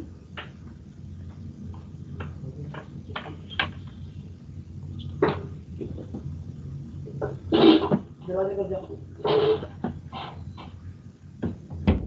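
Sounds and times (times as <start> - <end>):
low steady hum: 0.0 - 12.0
faint clicks and knocks: 0.3 - 4.0.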